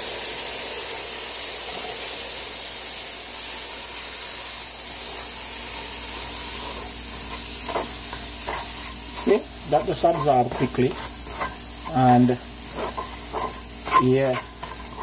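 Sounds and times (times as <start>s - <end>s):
vegetables sizzling in a pan: 0.0s - 15.0s
spatula stirring vegetables: 3.6s - 15.0s.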